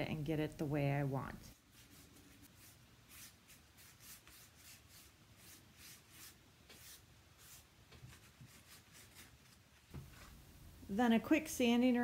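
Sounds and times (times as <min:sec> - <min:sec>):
paper towel rubbing cardboard: 0:01.5 - 0:09.6.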